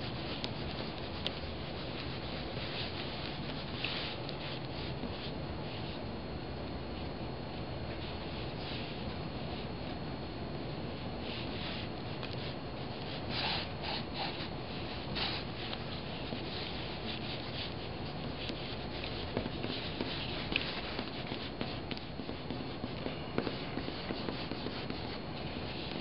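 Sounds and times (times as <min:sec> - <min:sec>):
pens scratching on paper: 0:00.0 - 0:05.3, 0:11.3 - 0:26.0.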